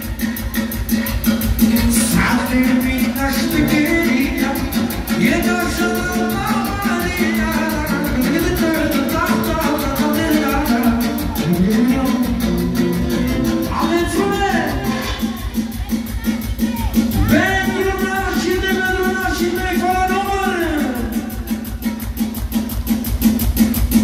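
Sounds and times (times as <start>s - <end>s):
band playing dance beat: 0.0s - 24.0s
man singing through microphone: 1.4s - 15.3s, 17.2s - 21.6s.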